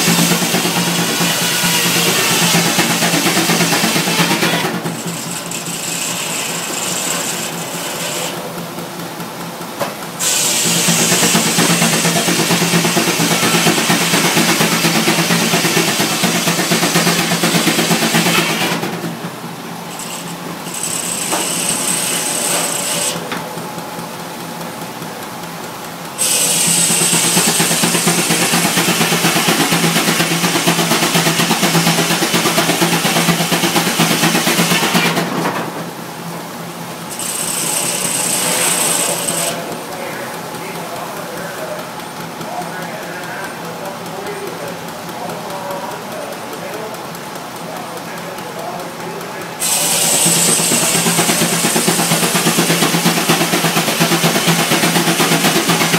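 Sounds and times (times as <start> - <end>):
circular saw whirring: 0.0 - 8.6, 10.2 - 19.0, 19.8 - 23.4, 26.2 - 35.2, 37.1 - 42.7, 43.7 - 55.9
saw cutting through log: 0.0 - 8.6, 10.2 - 18.9, 19.9 - 23.3, 26.2 - 35.2, 37.1 - 39.8, 49.6 - 55.9.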